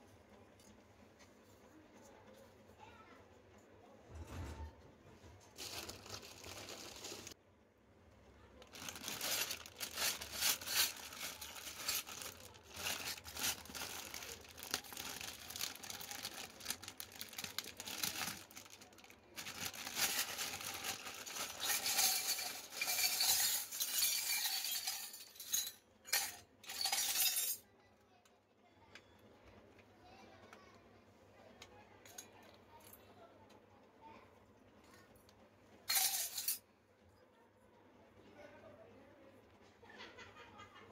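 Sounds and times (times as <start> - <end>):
plastic wrapping crinkling: 5.6 - 7.4, 8.6 - 23.2.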